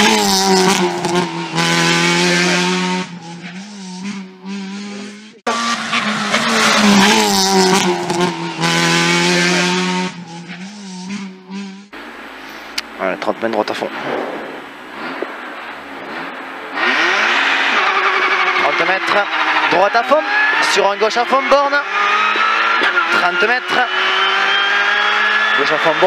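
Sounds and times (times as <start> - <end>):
car engine at high revs: 0.0 - 26.0.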